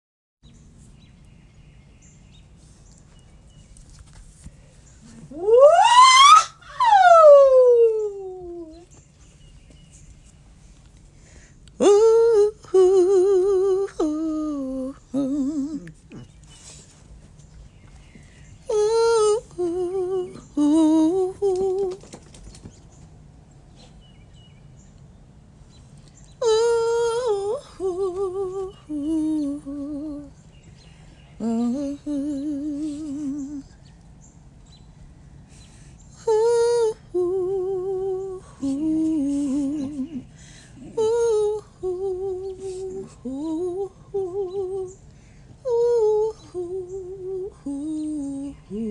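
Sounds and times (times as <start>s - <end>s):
woman humming and vocalizing: 5.0s - 8.9s, 11.8s - 16.4s, 26.4s - 30.3s, 31.4s - 33.7s, 36.2s - 45.0s, 45.6s - 48.9s.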